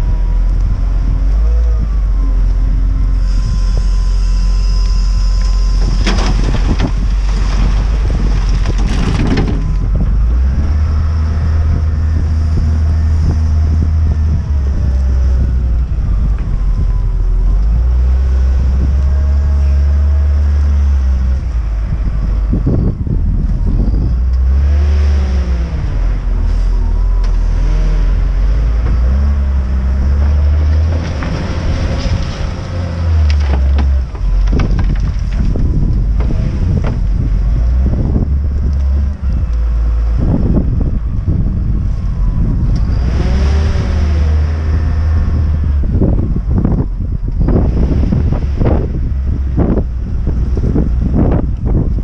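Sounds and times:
diesel engine running and revving: 0.0s - 52.0s
gravel rattling into metal trailer: 5.6s - 10.4s, 30.2s - 37.8s.

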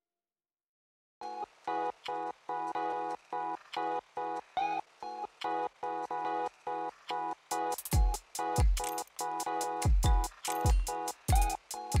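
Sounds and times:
high ticks: 7.6s - 11.7s
deep drum beat: 7.8s - 8.8s, 9.8s - 12.0s.

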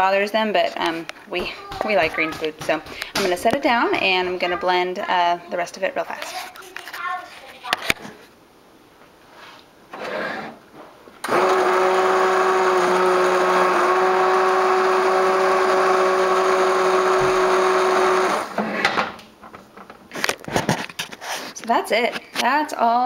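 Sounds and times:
immersion blender motor running: 11.2s - 18.6s.

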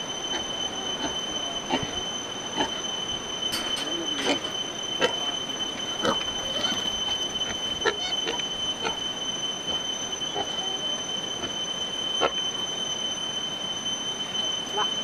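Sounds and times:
steady high-pitched whine: 0.0s - 15.0s
pigs grunting and squealing: 6.0s - 7.0s.

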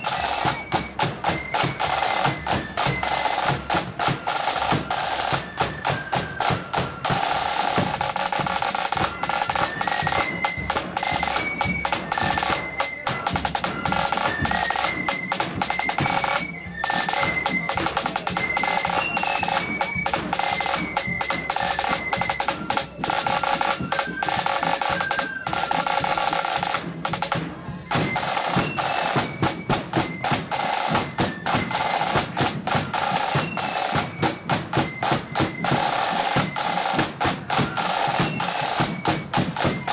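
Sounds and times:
high flute melody: 0.0s - 39.9s
side drums rolling: 0.0s - 39.9s.

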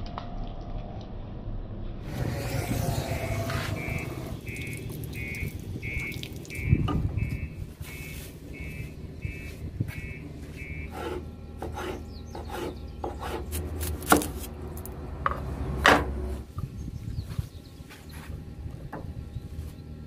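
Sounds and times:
steady low hum: 0.8s - 20.0s
high electronic beep: 3.6s - 10.9s
cleaver chopping on cutting board: 11.0s - 14.5s.

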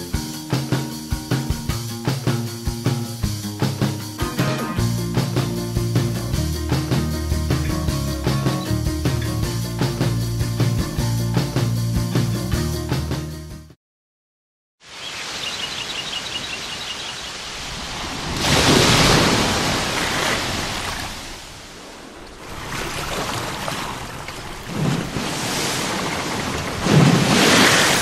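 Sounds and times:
music: 0.0s - 13.8s
waves washing on shore: 14.8s - 28.0s
wind: 14.8s - 28.0s.

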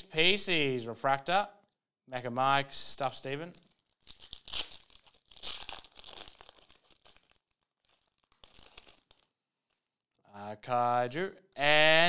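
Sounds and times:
foil wrapper tearing and crinkling: 3.5s - 9.8s.

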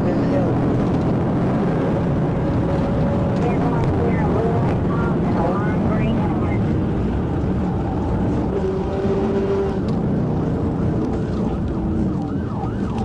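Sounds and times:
car engine and road noise: 0.0s - 13.0s
police siren yelping: 3.4s - 6.7s, 11.0s - 13.0s.

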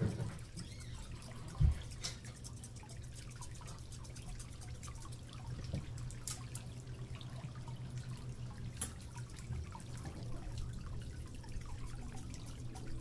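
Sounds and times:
water dripping and trickling: 0.0s - 13.0s.

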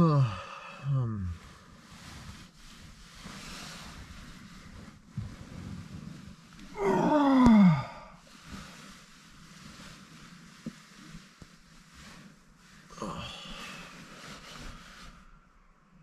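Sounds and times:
man yawning: 0.0s - 1.4s, 6.7s - 8.1s
sleeping bag rustling: 1.4s - 15.5s.

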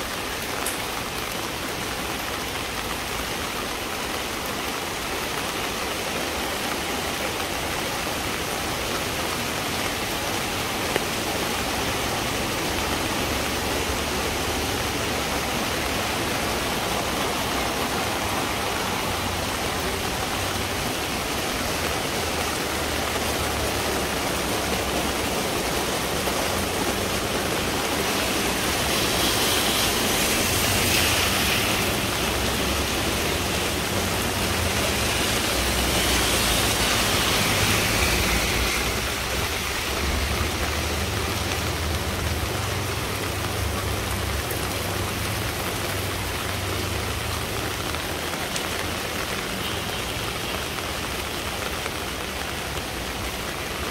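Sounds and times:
rain falling: 0.0s - 53.9s.

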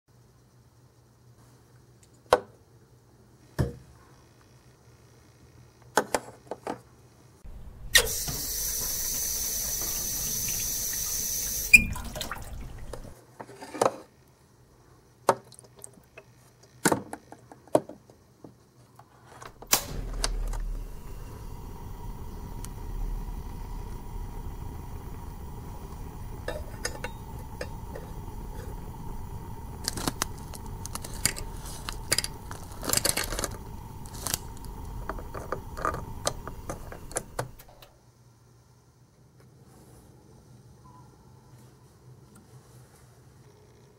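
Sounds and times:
steady low hum: 7.0s - 13.2s, 19.4s - 39.1s
water running into metal pot: 8.1s - 13.2s.

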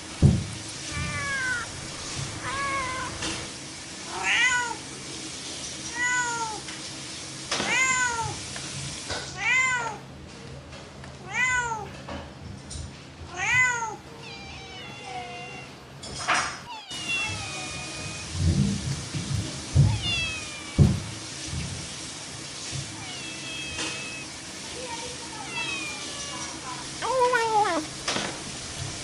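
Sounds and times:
cat meowing: 0.8s - 3.5s, 4.1s - 4.8s, 5.9s - 6.7s, 7.6s - 8.4s, 9.3s - 10.0s, 11.2s - 11.9s, 13.3s - 15.8s, 16.6s - 18.4s, 19.8s - 21.2s, 22.9s - 24.4s, 25.3s - 26.8s.

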